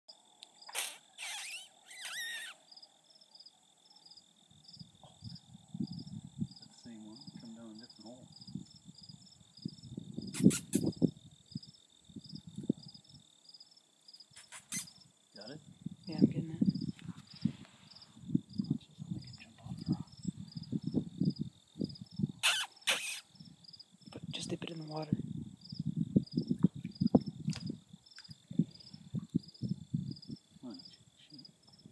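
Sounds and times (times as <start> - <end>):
crickets chirping: 0.1 - 31.9
high wavering squeals: 1.2 - 2.6.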